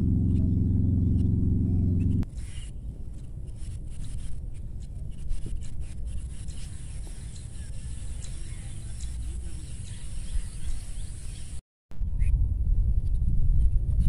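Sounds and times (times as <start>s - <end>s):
low rumble on microphone: 0.0s - 14.0s
faint bird chirps: 0.2s - 3.0s, 6.1s - 11.6s.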